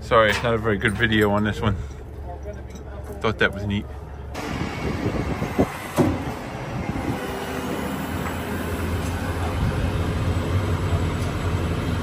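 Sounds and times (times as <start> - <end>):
diesel engine running under load: 3.8 - 12.0.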